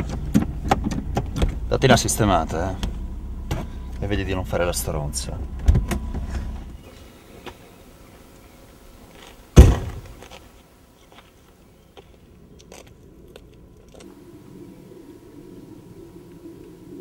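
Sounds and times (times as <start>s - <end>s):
low steady hum: 0.0s - 17.0s
car door slamming: 9.6s - 10.1s.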